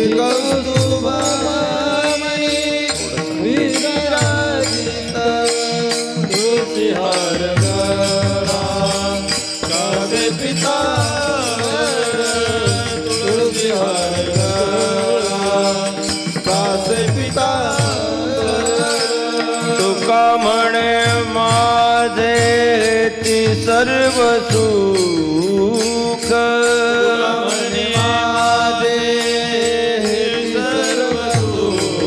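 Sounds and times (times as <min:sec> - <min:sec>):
chant-like devotional melody: 0:00.0 - 0:32.0
small hand cymbals clinking: 0:00.2 - 0:32.0.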